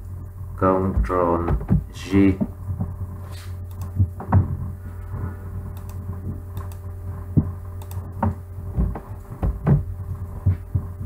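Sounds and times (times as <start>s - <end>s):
low steady hum: 0.0s - 11.0s
mouse and keyboard clicks: 7.8s - 8.0s.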